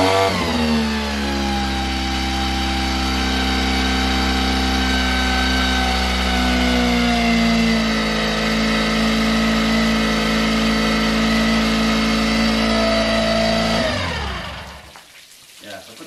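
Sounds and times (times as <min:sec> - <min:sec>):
outboard motor idling and stalling: 0:00.0 - 0:15.0.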